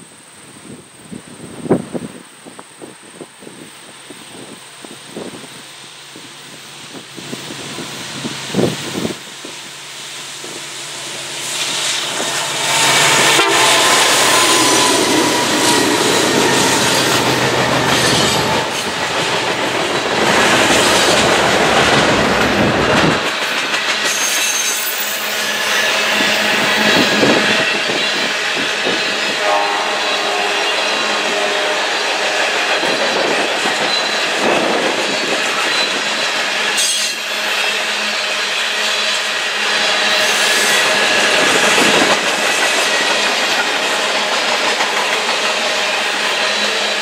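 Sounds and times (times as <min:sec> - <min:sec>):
diesel locomotive engines: 0:00.0 - 0:47.0.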